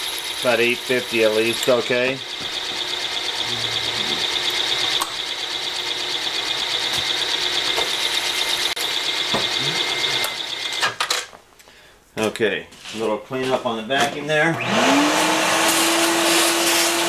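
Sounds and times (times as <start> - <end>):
drill cutting into aluminum: 0.0 - 11.0, 14.6 - 17.0.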